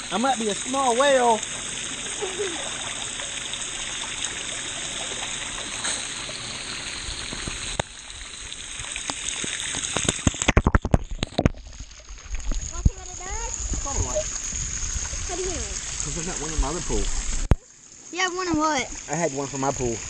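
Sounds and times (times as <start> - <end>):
water rushing and churning: 0.0 - 20.0
sharp splashes and knocks: 8.7 - 13.0.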